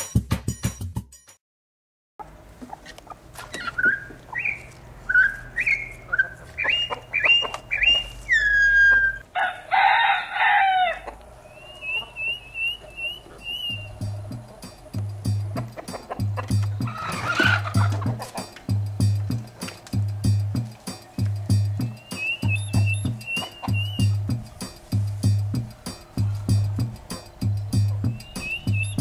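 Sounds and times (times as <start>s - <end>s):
bird calls and chirps: 3.4s - 9.2s, 11.4s - 14.8s, 20.6s - 25.0s, 26.0s - 29.0s
rooster crowing: 5.1s - 14.9s, 16.8s - 18.6s.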